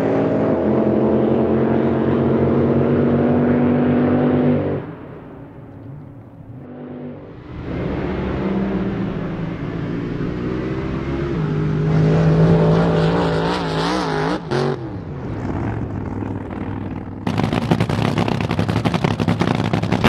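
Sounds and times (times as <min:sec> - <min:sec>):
drag boat engines racing: 0:00.0 - 0:20.0
boat engine idling loud and choppy: 0:15.8 - 0:20.0.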